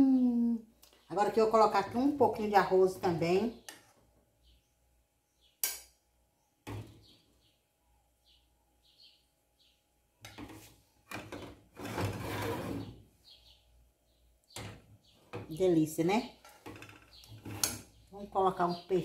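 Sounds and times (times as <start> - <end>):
wooden spoon scraping pot: 10.4 - 13.0, 16.4 - 17.9.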